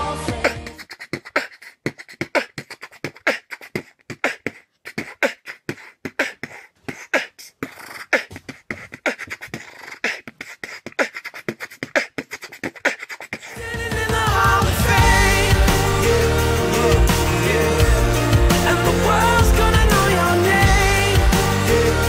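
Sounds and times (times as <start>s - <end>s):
boy beatboxing clicks and pops: 0.3s - 13.6s.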